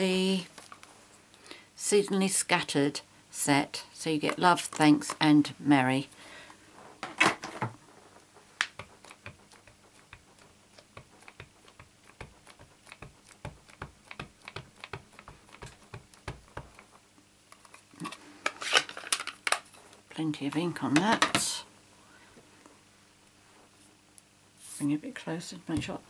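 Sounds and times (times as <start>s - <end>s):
rubber stamp tapping on ink pad: 8.6s - 16.9s.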